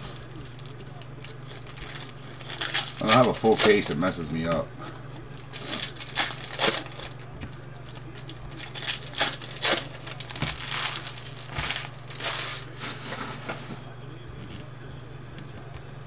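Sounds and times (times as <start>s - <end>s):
foil wrapper crinkling and tearing: 0.2s - 4.5s, 5.1s - 13.0s.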